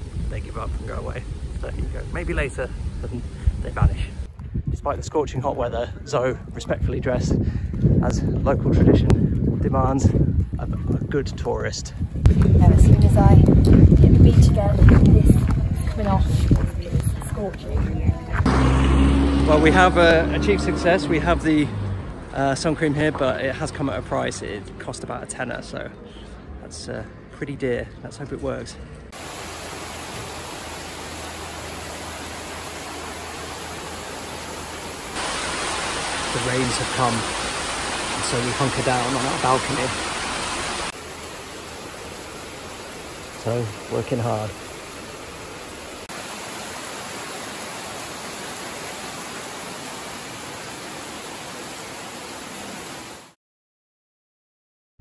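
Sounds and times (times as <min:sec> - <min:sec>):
heavy rain on foliage and roofs: 0:00.0 - 0:04.3, 0:18.4 - 0:22.0, 0:29.1 - 0:53.4.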